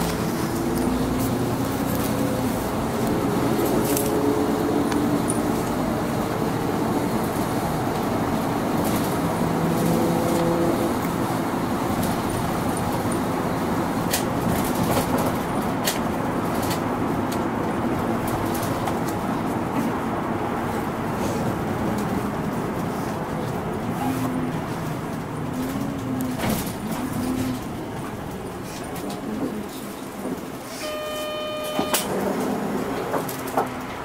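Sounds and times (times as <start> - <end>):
bus engine and road noise: 0.0 - 34.0
humming note: 30.8 - 32.1.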